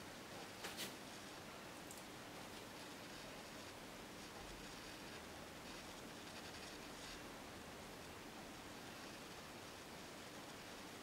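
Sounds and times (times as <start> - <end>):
background hiss: 0.0 - 11.0
paintbrush scratching on canvas: 2.6 - 7.3.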